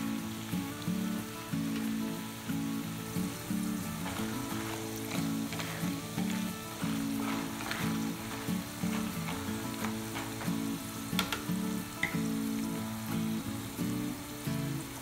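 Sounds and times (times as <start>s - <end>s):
background music with melody: 0.0s - 15.0s
food deep-frying in oil: 0.0s - 15.0s.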